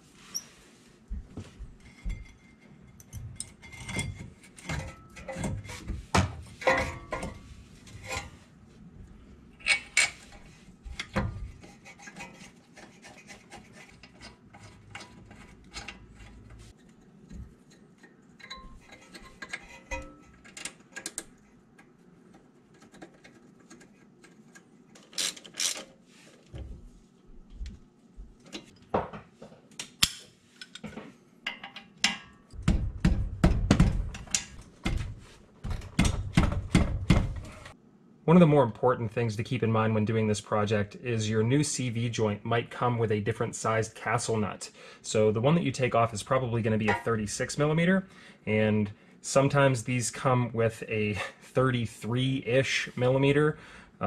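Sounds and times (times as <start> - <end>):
tools and metal parts clinking: 1.8 - 5.7, 9.6 - 10.4, 18.4 - 21.2
socket wrench ratcheting: 25.0 - 25.8.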